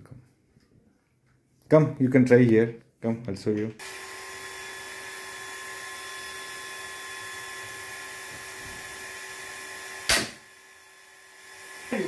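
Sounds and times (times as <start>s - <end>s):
slingshot crossbow snap: 10.1s - 10.4s.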